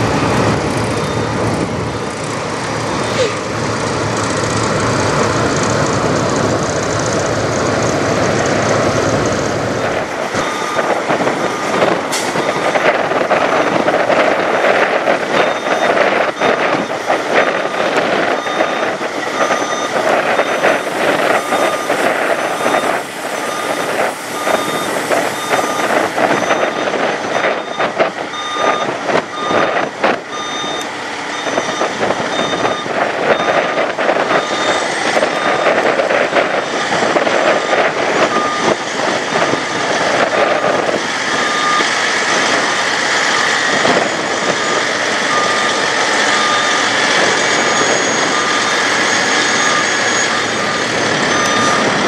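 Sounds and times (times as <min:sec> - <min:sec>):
truck backup alarm beeping: 0:00.0 - 0:01.6, 0:08.9 - 0:52.0
diesel truck engine running: 0:00.0 - 0:52.0.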